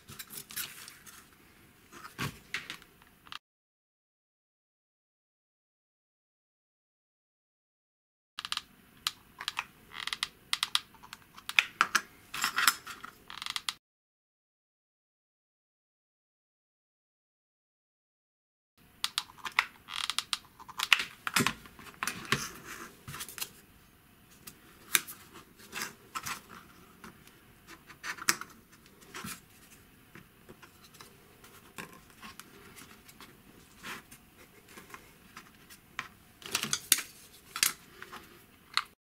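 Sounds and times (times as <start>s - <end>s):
plastic parts clicking and tapping: 8.4s - 13.8s, 19.0s - 22.5s, 34.7s - 38.9s.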